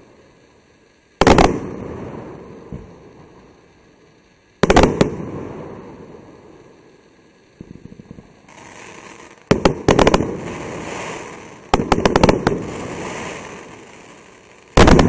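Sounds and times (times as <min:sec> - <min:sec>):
firework bangs: 0:01.2 - 0:03.5, 0:04.6 - 0:15.0
big firework bang: 0:14.7 - 0:15.0.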